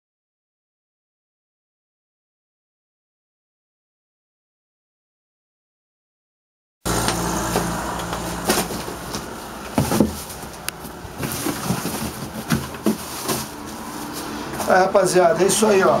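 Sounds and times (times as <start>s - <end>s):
plastic bags and boxes handled: 6.9s - 16.0s
street traffic: 6.9s - 16.0s
vehicle engine running: 6.9s - 16.0s.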